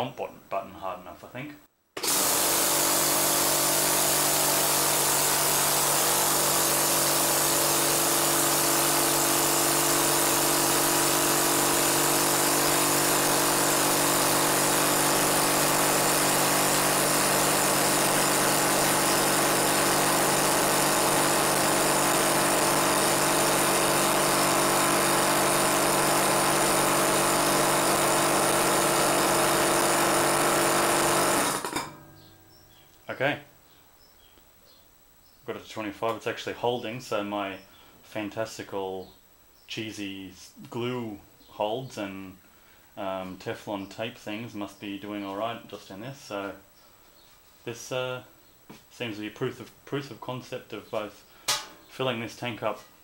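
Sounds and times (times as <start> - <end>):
vacuum pump running: 2.0 - 32.0.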